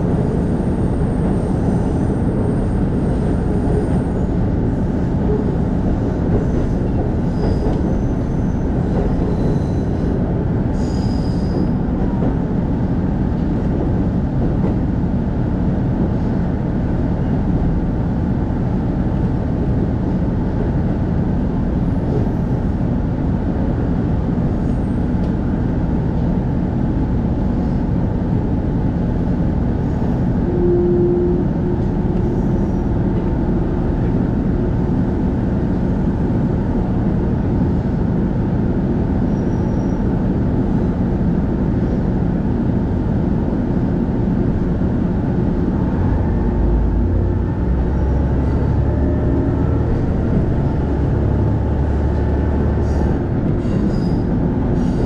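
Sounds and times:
railcar engine drone: 0.0s - 55.0s
wheels rumbling on rails: 0.0s - 55.0s
brief steady tone: 30.5s - 32.7s.

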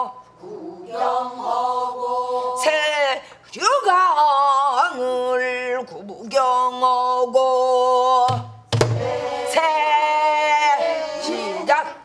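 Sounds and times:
barrel drum beating: 8.3s - 9.2s
deep drum thump: 8.3s - 9.2s.

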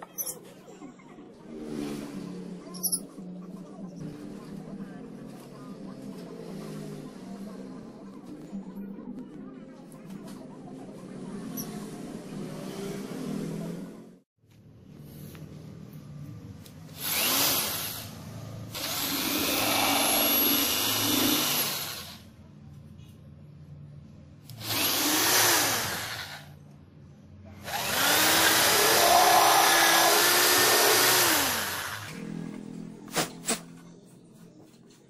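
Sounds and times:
electric drill boring holes: 17.0s - 18.1s, 18.8s - 22.2s, 24.5s - 26.5s, 27.6s - 32.2s.

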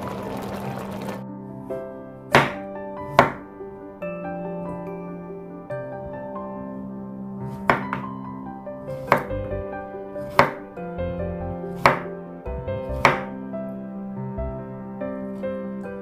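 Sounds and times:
soft background music: 0.0s - 16.0s
knife chopping on cutting board: 2.4s - 2.6s, 7.6s - 8.0s, 9.0s - 9.3s, 10.2s - 10.6s, 11.7s - 12.1s, 13.0s - 13.3s.

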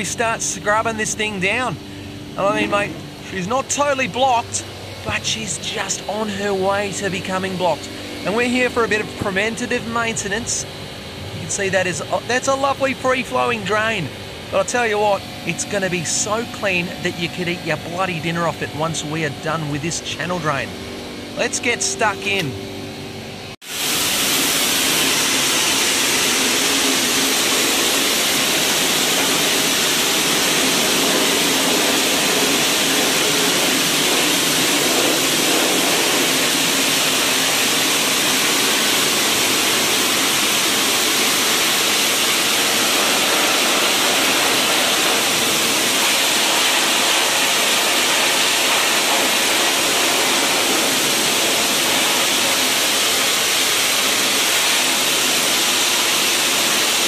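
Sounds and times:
high-pressure water spraying: 23.6s - 57.0s.

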